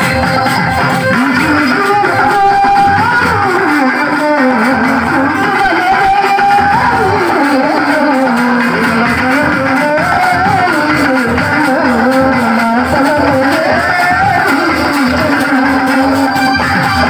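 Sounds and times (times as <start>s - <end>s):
folk music: 0.0s - 17.0s
steady drum beat: 0.0s - 17.0s.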